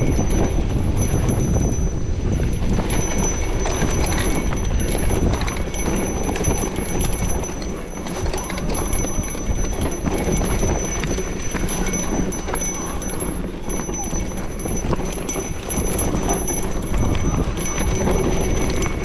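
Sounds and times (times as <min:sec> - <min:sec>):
bike rattling knocks: 0:00.0 - 0:19.0
wind and tyres rumbling: 0:00.0 - 0:19.0.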